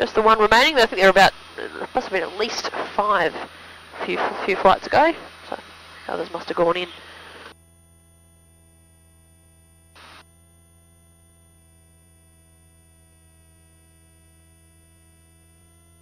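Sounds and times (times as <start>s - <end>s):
faint electronic hum: 0.0s - 16.0s.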